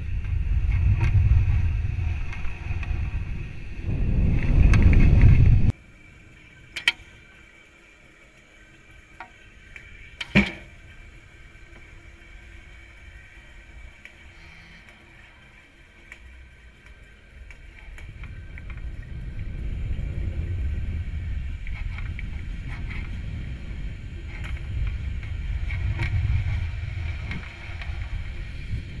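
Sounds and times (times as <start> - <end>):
low rumble of air buffeting: 0.0 - 5.8, 17.7 - 29.0.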